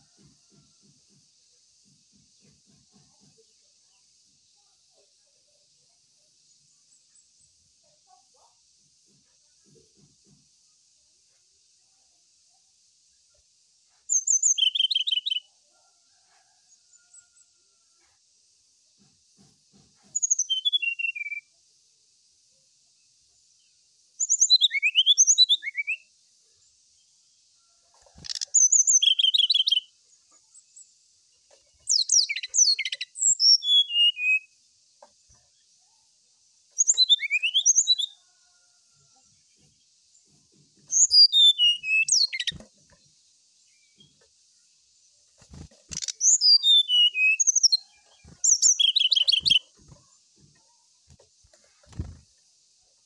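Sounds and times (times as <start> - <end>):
bird singing whistled notes: 14.1 - 15.5, 20.1 - 21.5, 24.2 - 26.1, 28.2 - 29.9, 31.9 - 34.6, 36.8 - 38.2, 40.9 - 42.6, 45.9 - 49.7.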